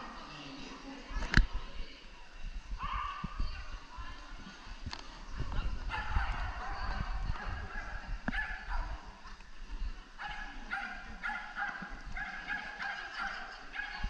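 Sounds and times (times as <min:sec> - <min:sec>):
dog barking: 0:02.8 - 0:03.2, 0:05.9 - 0:06.8, 0:07.6 - 0:09.0, 0:10.2 - 0:14.0.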